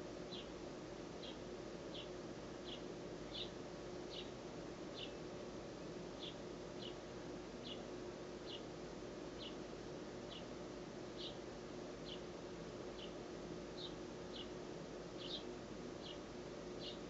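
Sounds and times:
faint hum: 0:00.0 - 0:17.0
sparrow begging chirps: 0:00.3 - 0:00.5, 0:01.2 - 0:04.4, 0:05.0 - 0:05.2, 0:06.2 - 0:07.0, 0:07.6 - 0:08.7, 0:11.2 - 0:11.4, 0:12.0 - 0:12.3, 0:13.0 - 0:13.2, 0:13.8 - 0:14.5, 0:15.2 - 0:16.2, 0:16.8 - 0:17.0.

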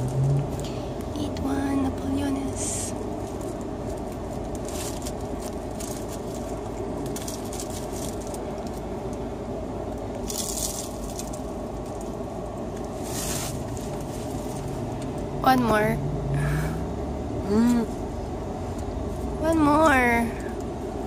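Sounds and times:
car interior hum: 0:00.0 - 0:21.0
pastry paper crinkling: 0:03.1 - 0:09.2, 0:10.2 - 0:14.8.

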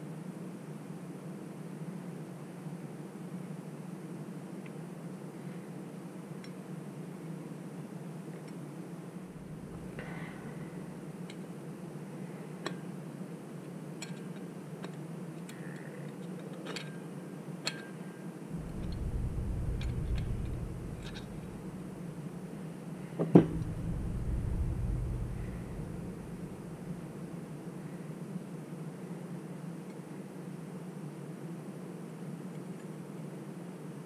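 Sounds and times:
steady low hum: 0:09.1 - 0:12.6, 0:18.5 - 0:28.5
low rumble: 0:09.3 - 0:11.2, 0:18.6 - 0:22.5, 0:23.4 - 0:27.6.

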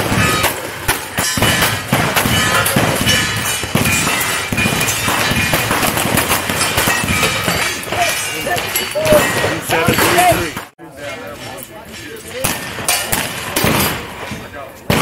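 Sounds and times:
rifle shots: 0:00.0 - 0:10.3
steel plates ringing: 0:00.0 - 0:14.4.

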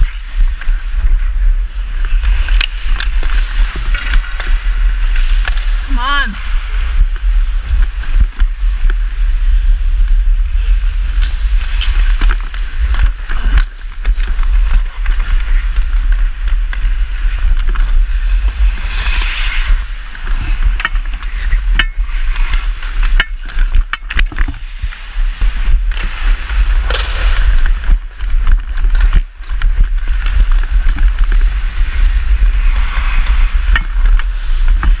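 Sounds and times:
ice skates scraping on ice: 0:00.0 - 0:35.0
steady low rumble: 0:00.0 - 0:35.0
hockey stick clacking puck: 0:02.2 - 0:04.6.

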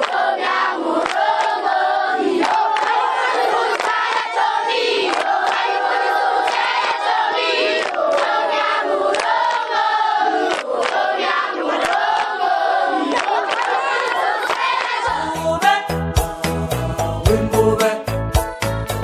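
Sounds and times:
hand claps: 0:00.0 - 0:00.3, 0:01.0 - 0:01.6, 0:02.4 - 0:04.3, 0:05.0 - 0:07.1, 0:07.8 - 0:09.7, 0:10.4 - 0:11.2, 0:11.8 - 0:12.4, 0:13.1 - 0:15.1
children singing and chanting: 0:00.0 - 0:17.9.

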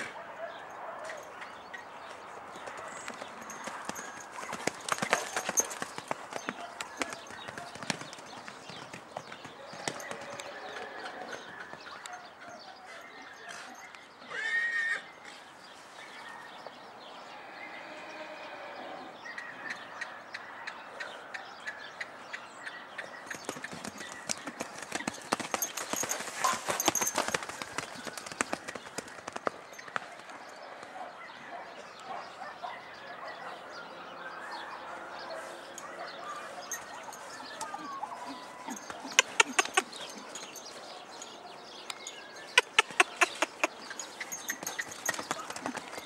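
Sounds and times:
hoofbeats on dirt: 0:02.0 - 0:12.6, 0:23.0 - 0:31.0, 0:36.0 - 0:46.0
horse whinny: 0:14.3 - 0:15.1.

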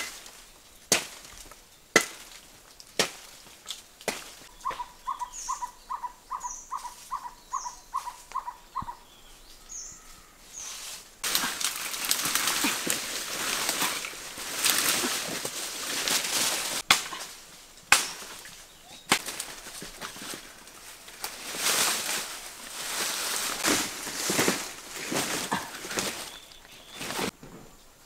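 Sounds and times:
dry leaves rustling and crunching: 0:00.0 - 0:05.6, 0:06.4 - 0:08.5, 0:10.5 - 0:27.4
sharp cracks: 0:11.2 - 0:20.4.

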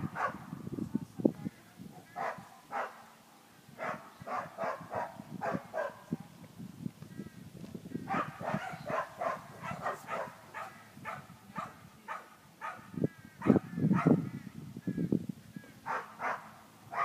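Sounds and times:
dog barking: 0:00.0 - 0:00.4, 0:02.2 - 0:03.1, 0:03.8 - 0:06.0, 0:08.1 - 0:14.2, 0:15.9 - 0:17.0.

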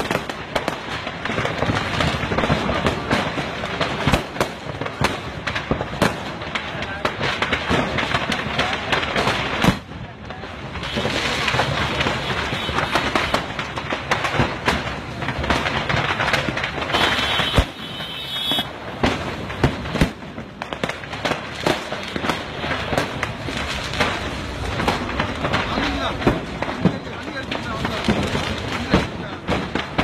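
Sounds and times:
firecrackers crackling: 0:00.0 - 0:30.0
sharp firework cracks: 0:00.0 - 0:30.0.

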